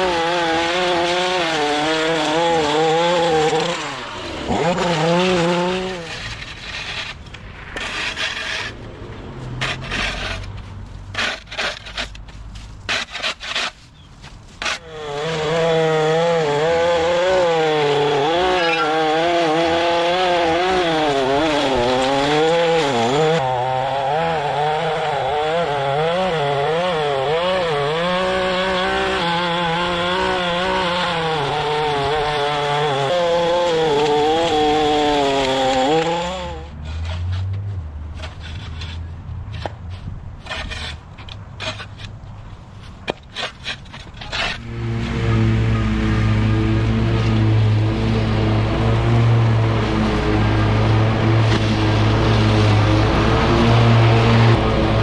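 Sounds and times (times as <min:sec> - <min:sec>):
small engine revving: 0:00.0 - 0:06.7, 0:14.8 - 0:37.4, 0:44.4 - 0:55.0.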